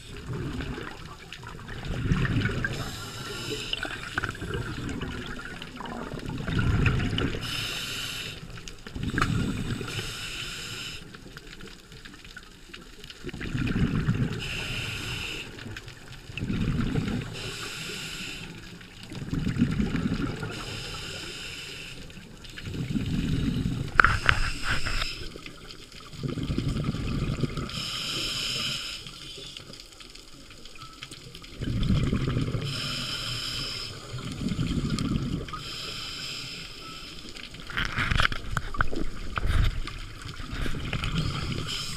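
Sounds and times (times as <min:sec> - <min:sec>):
exhaled bubbles gurgling underwater: 0:00.0 - 0:41.9
regulator inhale hiss: 0:02.7 - 0:04.5, 0:07.4 - 0:11.2, 0:14.4 - 0:15.6, 0:17.3 - 0:18.8, 0:20.5 - 0:22.2, 0:23.1 - 0:25.3, 0:27.7 - 0:29.6, 0:32.6 - 0:34.4, 0:35.5 - 0:37.4, 0:41.2 - 0:41.9.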